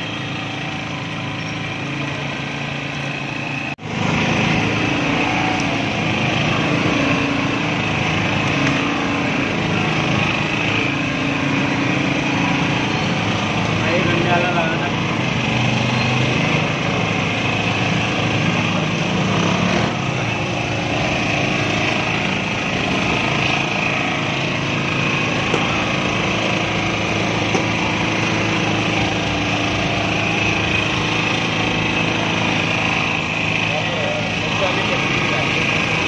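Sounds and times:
small engine running: 0.0 - 36.0.

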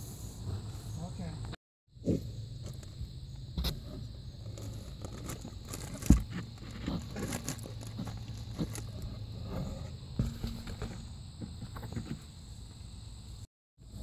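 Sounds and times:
scratching and rustling on cardboard: 3.6 - 12.4.

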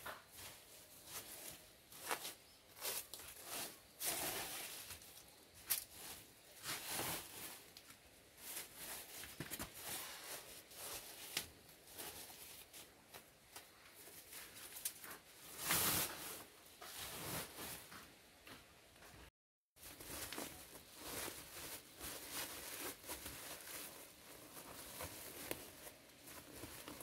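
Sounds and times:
plastic sack rustling: 0.2 - 17.9, 19.8 - 27.0
styrofoam crunching: 19.8 - 27.0.

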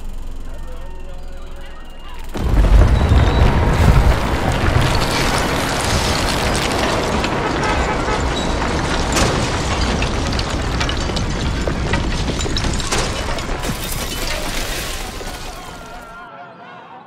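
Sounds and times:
deep rumble: 2.0 - 14.5
falling bricks and debris: 2.3 - 16.2.

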